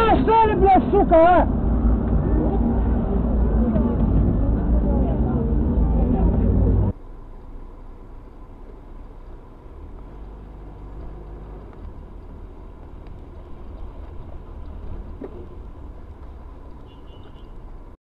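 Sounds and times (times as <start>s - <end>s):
road and engine rumble: 0.0s - 18.0s.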